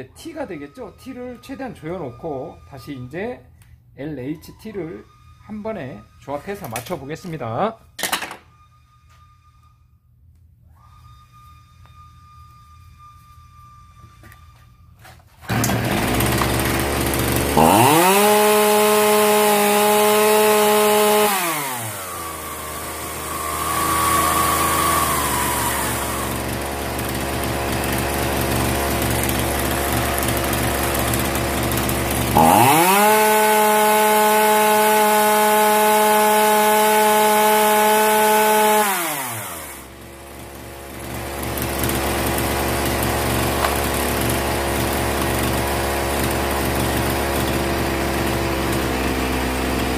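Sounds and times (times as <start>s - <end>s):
chainsaw engine revving and idling: 15.4s - 49.9s.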